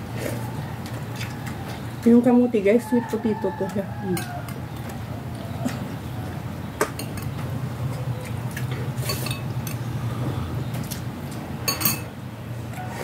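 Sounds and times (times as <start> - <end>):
cutlery clinking on dishes: 9.0 - 9.8, 11.7 - 12.1.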